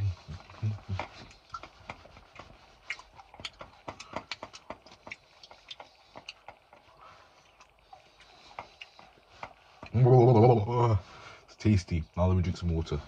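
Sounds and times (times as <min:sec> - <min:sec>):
person chewing crunchy food: 0:00.1 - 0:10.1.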